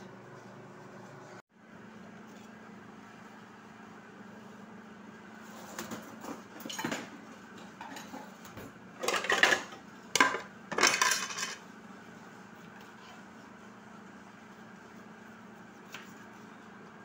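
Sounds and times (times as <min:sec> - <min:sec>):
dishes and utensils clattering: 0:05.8 - 0:08.4, 0:09.0 - 0:11.6.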